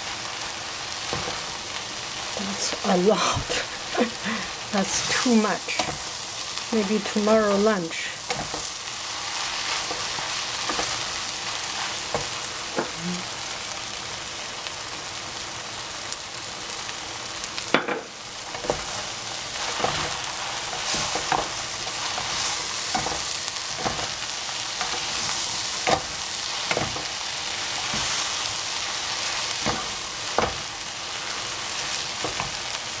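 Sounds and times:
noodles sizzling in frying pan: 0.0s - 33.0s
spatulas knocking and scraping pan: 19.6s - 24.2s, 24.8s - 27.1s, 29.6s - 30.7s.

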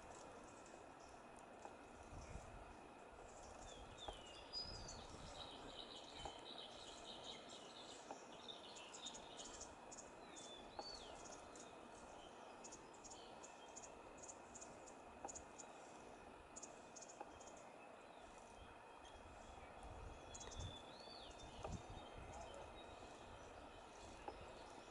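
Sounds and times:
insects ticking: 0.0s - 24.9s.

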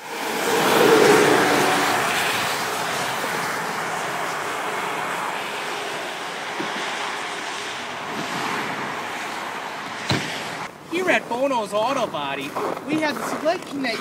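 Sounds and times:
road traffic: 0.0s - 14.0s
wind: 0.0s - 14.0s.

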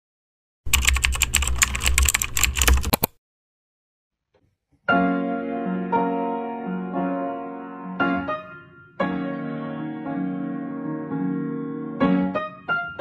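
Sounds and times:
rapid keyboard typing: 0.7s - 3.2s
soft piano music: 4.9s - 13.0s.

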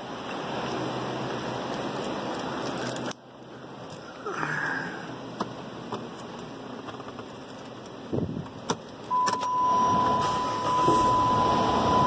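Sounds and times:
car engine cranking and running: 5.0s - 12.0s
electronic warning tone: 9.1s - 12.0s.

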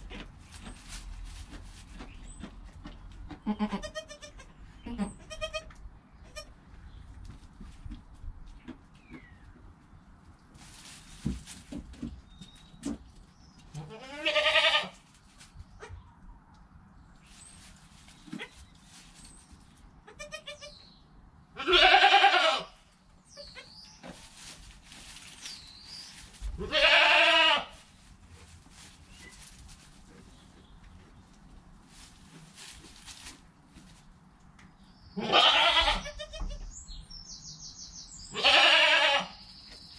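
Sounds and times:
faint rustling: 0.0s - 5.4s, 6.2s - 13.8s, 17.2s - 19.9s, 23.3s - 35.0s
goats bleating: 3.4s - 5.7s, 13.8s - 15.0s, 21.6s - 22.7s, 26.6s - 27.8s, 35.2s - 36.6s, 38.3s - 39.3s.

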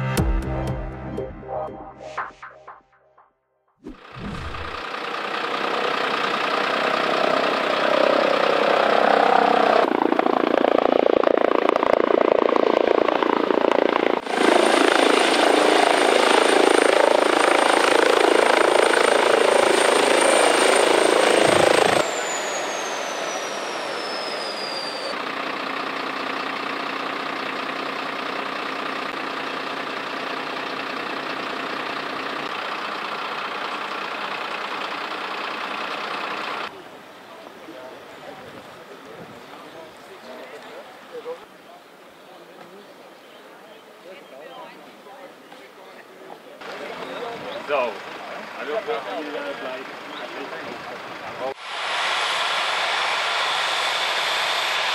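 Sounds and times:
helicopter rotor and turbine whine: 3.9s - 36.9s, 46.7s - 54.9s
idling vehicle engines hum: 4.2s - 9.9s, 25.0s - 41.5s, 45.6s - 51.6s.

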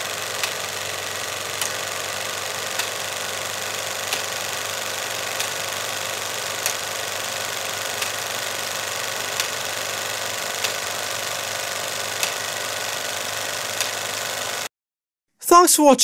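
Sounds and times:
film projector whirring: 0.0s - 14.7s
projector click: 0.0s - 14.7s.

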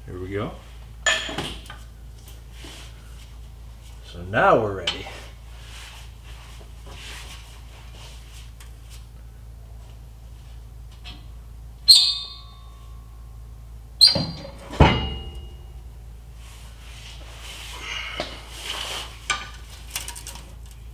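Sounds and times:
metal-on-metal clanks: 14.0s - 15.7s.

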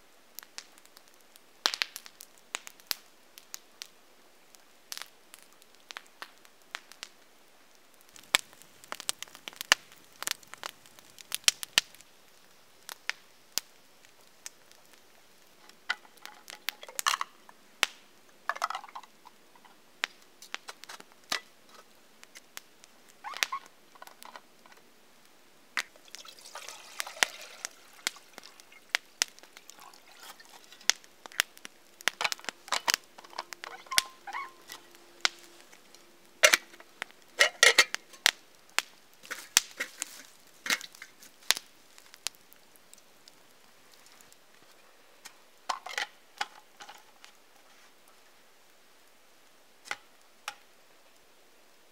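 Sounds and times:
campfire crackling: 0.0s - 51.9s
fire popping: 0.0s - 51.9s
handling thermos and metal kettle: 36.4s - 38.2s, 39.2s - 41.1s.

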